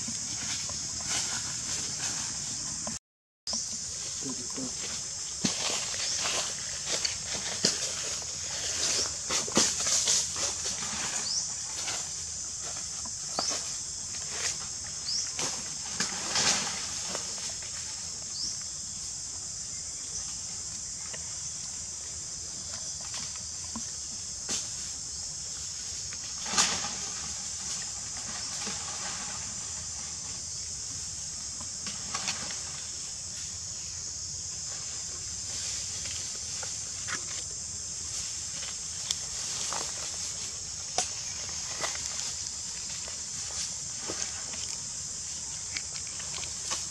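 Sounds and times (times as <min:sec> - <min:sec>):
rustles and clicks: 0:34.7 - 0:46.9.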